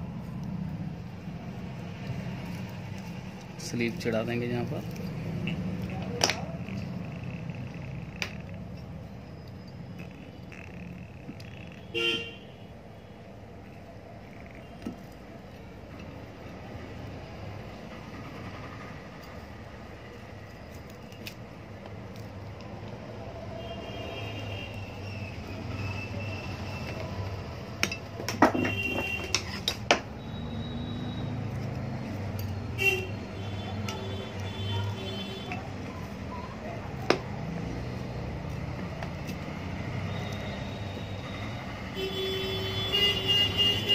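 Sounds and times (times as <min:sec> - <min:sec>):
metallic clinks and knocks: 0:32.2 - 0:32.6.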